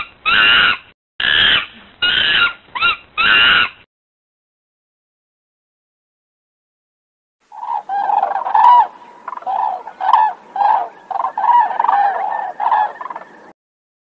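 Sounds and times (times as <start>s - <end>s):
crane calls: 7.5s - 13.6s.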